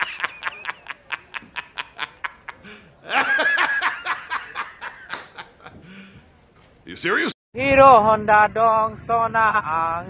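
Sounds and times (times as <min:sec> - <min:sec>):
man laughing in staccato bursts: 0:00.0 - 0:06.0.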